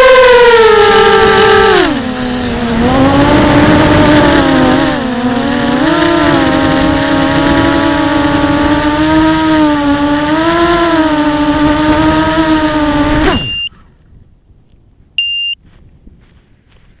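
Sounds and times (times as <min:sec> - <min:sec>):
drone motors whining: 0:00.0 - 0:13.8
short electronic beep: 0:13.2 - 0:13.7, 0:15.2 - 0:15.6.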